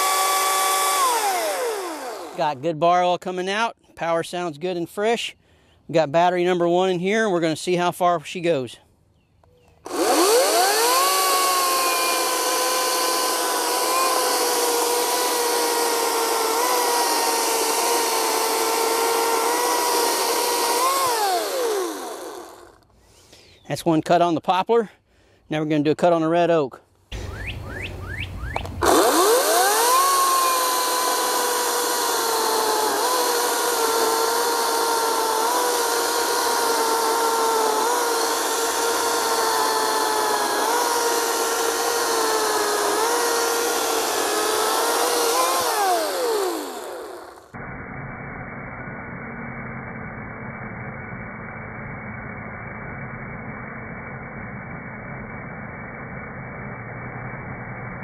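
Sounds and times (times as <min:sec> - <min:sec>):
electric chainsaw cutting log: 0:00.0 - 0:02.8, 0:09.8 - 0:22.9, 0:28.5 - 0:58.0.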